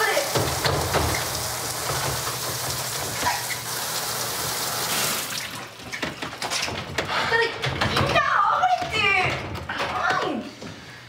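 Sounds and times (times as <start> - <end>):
shower water spray hissing: 0.0 - 5.4.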